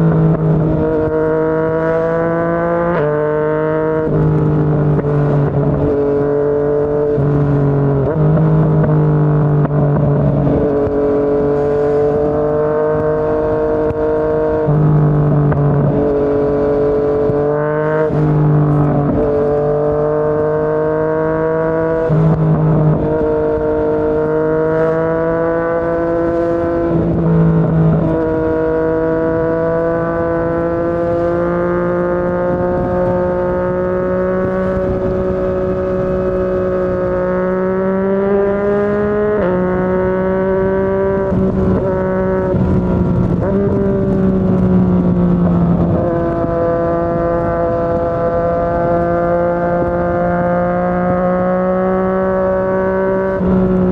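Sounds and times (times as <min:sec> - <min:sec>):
motorcycle engine drone: 0:00.0 - 0:53.9.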